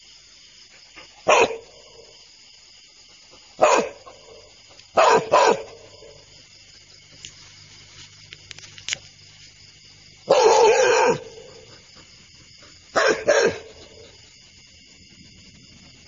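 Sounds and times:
dog barking: 0:01.2 - 0:02.1, 0:03.6 - 0:06.2, 0:10.2 - 0:14.2.

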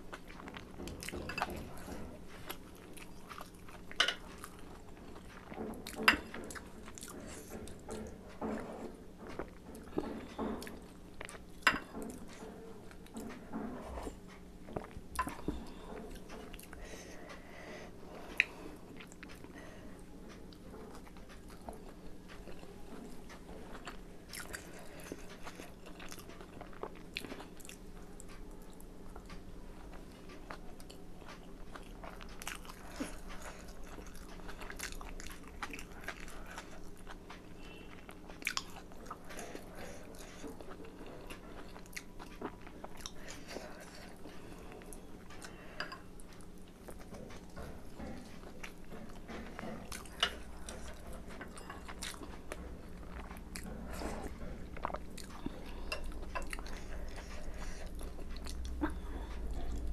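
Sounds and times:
close chewing of dumplings: 0:00.0 - 0:59.9.

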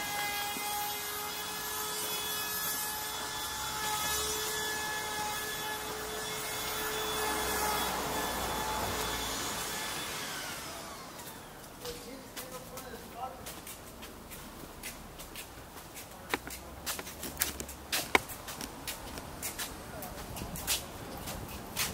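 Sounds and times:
vehicle passing with whine: 0:06.0 - 0:11.1.

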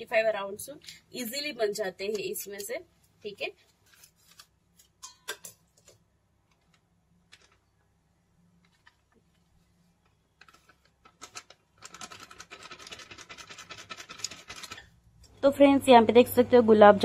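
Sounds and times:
plastic packet rustling: 0:08.7 - 0:14.9.

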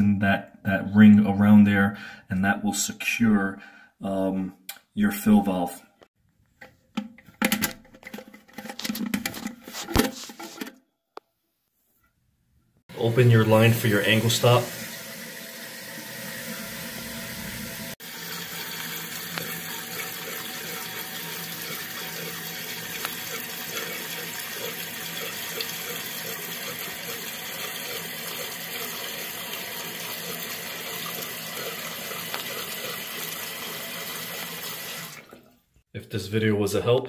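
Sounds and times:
water rushing into toilet tank: 0:12.9 - 0:35.6.

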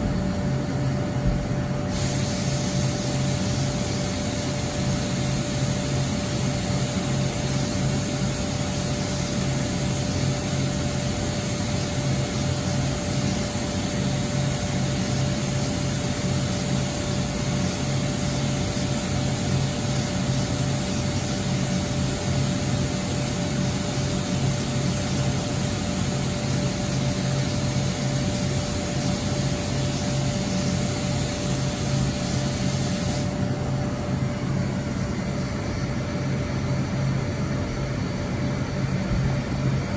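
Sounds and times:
machine hiss: 0:00.0 - 0:39.9.

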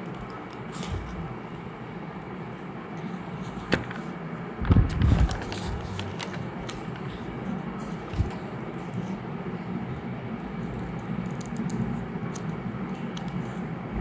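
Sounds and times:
paper handling: 0:03.4 - 0:08.4.

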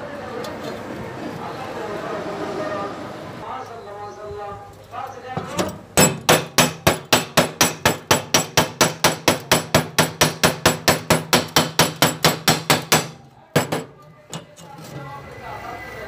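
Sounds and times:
hammer striking steel weld: 0:05.4 - 0:14.5.

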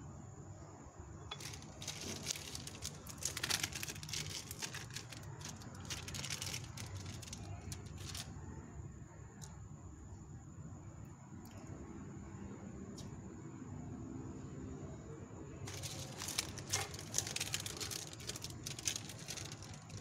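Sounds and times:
plastic film crinkling: 0:01.3 - 0:08.3, 0:15.7 - 0:20.0.

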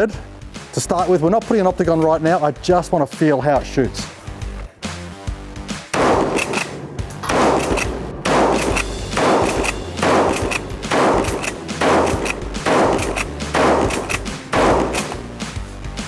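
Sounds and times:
rifle shots: 0:05.9 - 0:15.4
rifle action pumped: 0:06.0 - 0:15.3.

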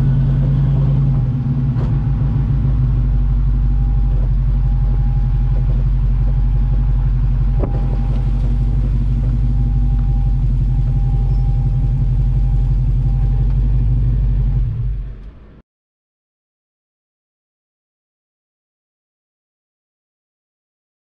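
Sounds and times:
car exhaust idling: 0:00.0 - 0:15.4.

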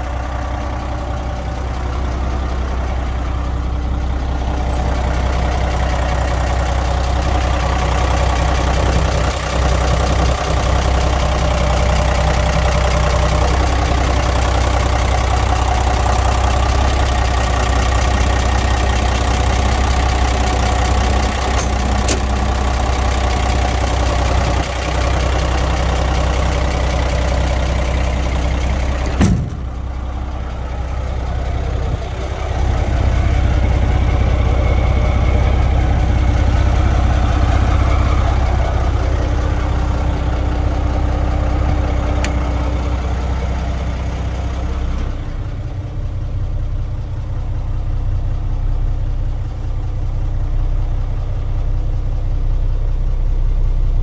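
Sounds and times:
diesel engine idling: 0:00.0 - 0:54.0
click: 0:42.2 - 0:42.4.

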